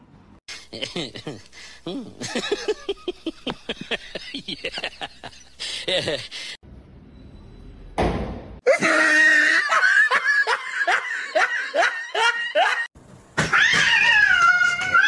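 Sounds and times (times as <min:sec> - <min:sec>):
person laughing high-pitched: 0:08.7 - 0:12.9.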